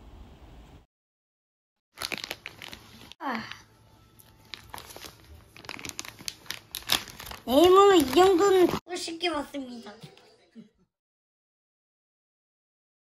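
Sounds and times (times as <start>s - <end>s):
plastic bag crinkling: 1.9s - 3.2s, 4.2s - 8.8s
child vocal sound: 3.2s - 3.6s.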